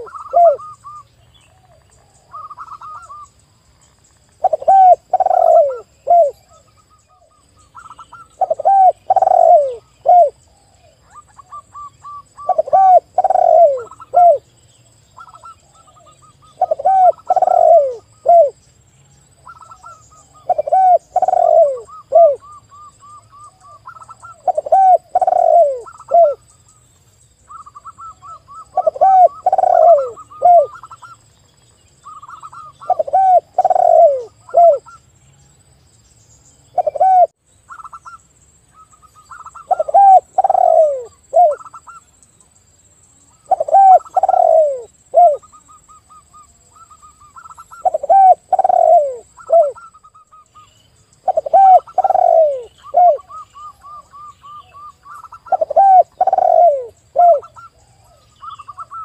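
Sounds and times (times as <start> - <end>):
dove cooing falling notes: 0.0 - 1.0, 4.4 - 6.6, 7.9 - 10.4, 11.1 - 14.4, 15.2 - 18.6, 19.5 - 22.5, 23.6 - 26.4, 27.5 - 31.0, 32.1 - 35.0, 36.8 - 37.9, 39.4 - 41.9, 43.5 - 45.5, 46.8 - 50.2, 51.3 - 57.7
dove cooing higher softer notes: 0.0 - 3.4, 4.4 - 14.5, 15.1 - 18.6, 19.4 - 26.8, 27.4 - 31.2, 32.0 - 35.1, 36.7 - 42.2, 43.2 - 59.0.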